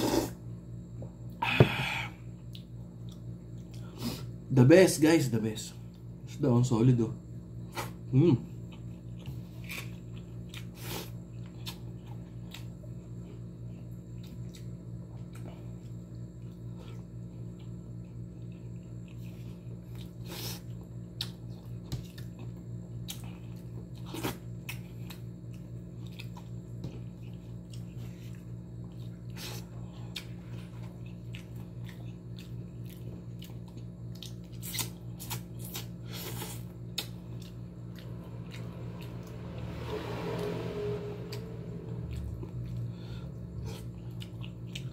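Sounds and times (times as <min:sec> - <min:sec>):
steady low hum: 0:00.0 - 0:44.9
wet chewing and lip-smacking: 0:14.1 - 0:39.3, 0:43.5 - 0:44.9.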